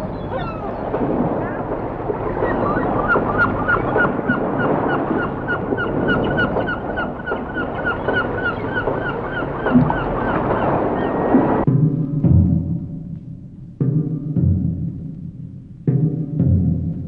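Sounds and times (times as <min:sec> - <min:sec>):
gulls calling: 0:00.0 - 0:11.7.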